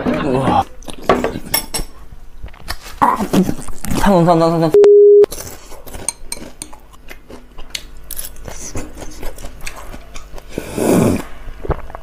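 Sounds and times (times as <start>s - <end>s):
chewing fried food: 5.3s - 12.0s.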